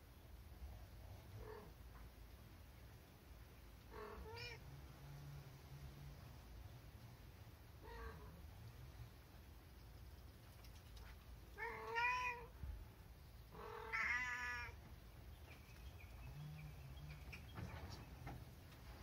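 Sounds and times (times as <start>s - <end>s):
cat meowing: 3.9s - 4.6s, 11.6s - 12.5s, 13.6s - 14.8s.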